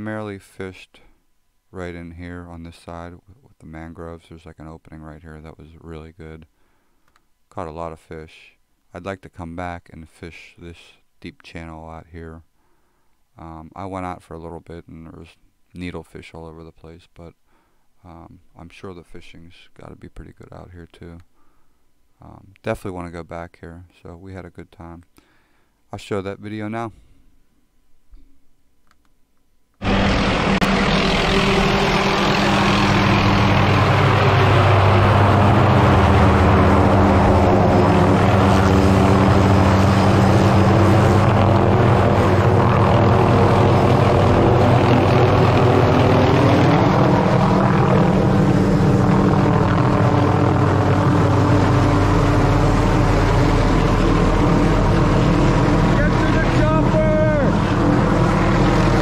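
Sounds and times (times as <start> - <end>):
helicopter flying overhead: 29.8 - 59.0.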